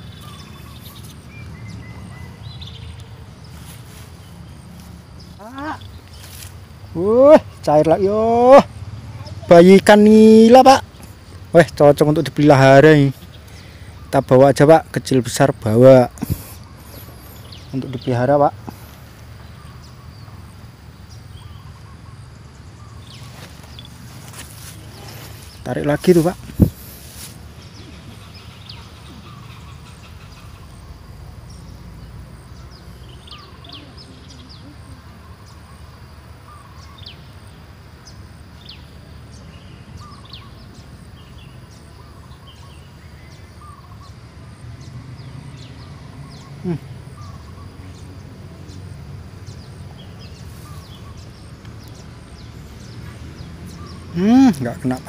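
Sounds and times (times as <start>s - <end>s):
small birds chirping: 0.0s - 55.0s.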